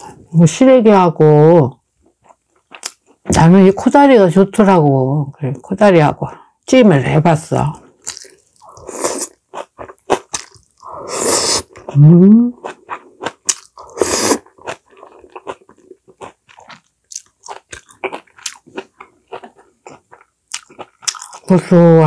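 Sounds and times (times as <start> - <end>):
close-miked chewing: 8.0 - 21.6.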